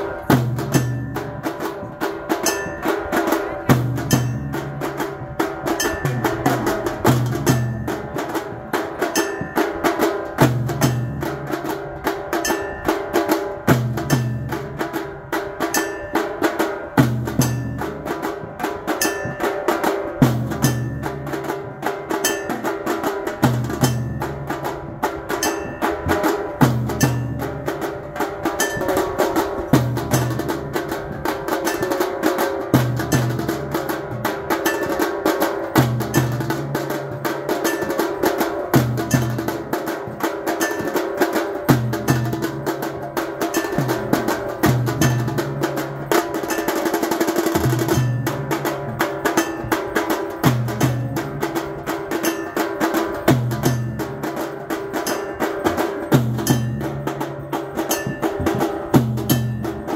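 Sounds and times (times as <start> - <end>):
low drum pattern: 0.0 - 59.9
rapid percussion strokes: 0.0 - 59.9
steady ringing tones: 0.0 - 59.9.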